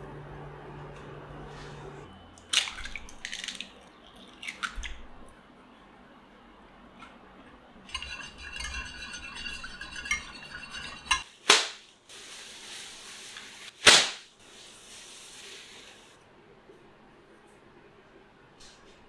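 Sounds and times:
plastic rustling: 11.6 - 16.2.

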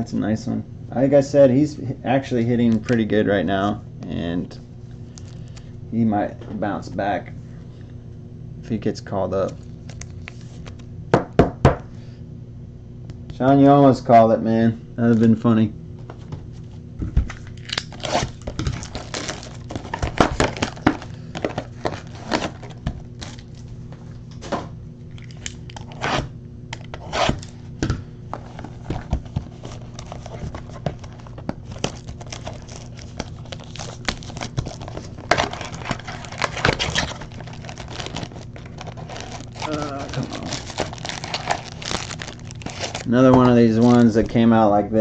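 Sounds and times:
plastic wrapper crinkling and tearing: 9.4 - 10.8, 17.3 - 23.8, 28.4 - 44.4.

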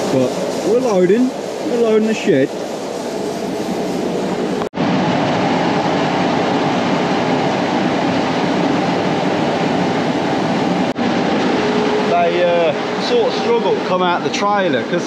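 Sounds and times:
grain rushing: 0.0 - 4.7
machine running: 0.0 - 15.0.

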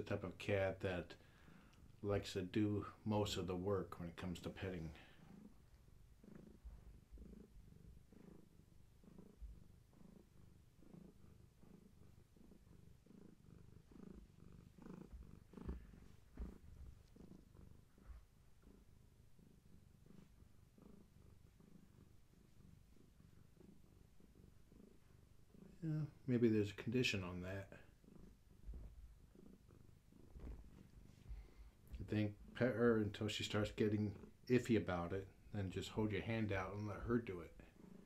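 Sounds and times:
cat purring: 0.0 - 38.0
soft thumps: 30.3 - 32.0.

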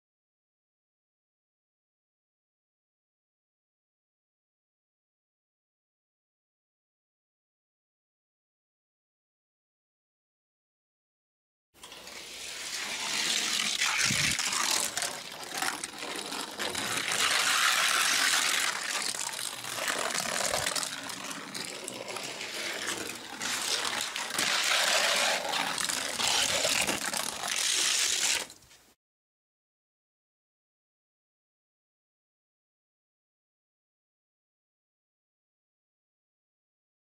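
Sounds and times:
toy car rolling on track: 11.8 - 28.6.

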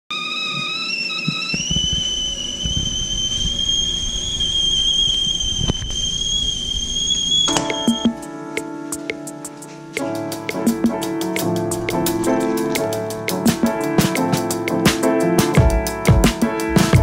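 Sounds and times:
kettle whistling: 0.1 - 8.2.

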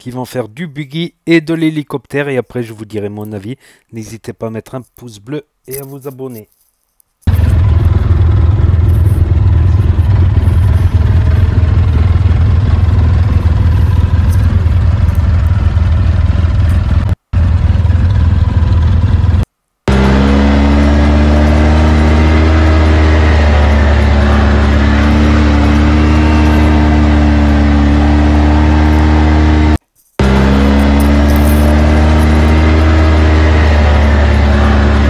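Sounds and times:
buggy engine rumbling: 7.3 - 35.0.

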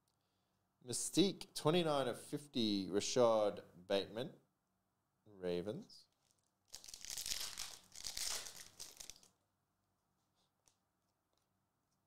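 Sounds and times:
trading cards shuffling: 6.2 - 9.3.

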